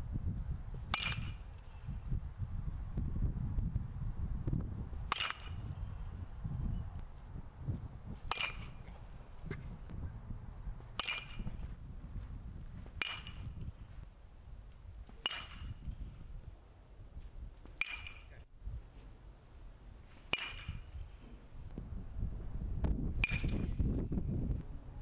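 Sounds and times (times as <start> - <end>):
low wind rumble: 0.0 - 25.0
metal bat hitting ball: 0.9 - 1.6, 5.1 - 5.8, 8.2 - 9.0, 10.9 - 11.6, 13.0 - 13.7, 15.1 - 15.9, 17.7 - 18.4, 20.3 - 21.0, 23.2 - 23.9.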